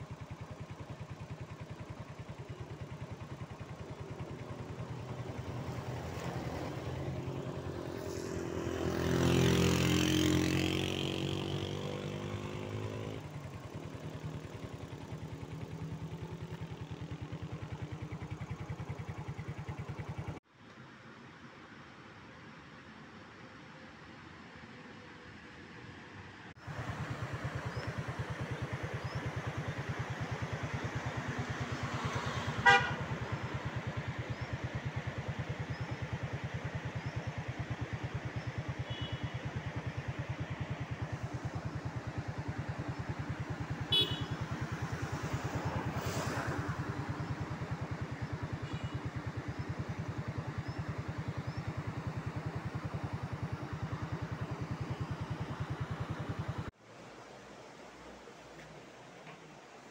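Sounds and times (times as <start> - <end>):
motorcycle engine running: 0.0 - 20.4, 26.6 - 56.8
horn toots: 32.1 - 33.3, 38.8 - 39.4, 43.8 - 44.6.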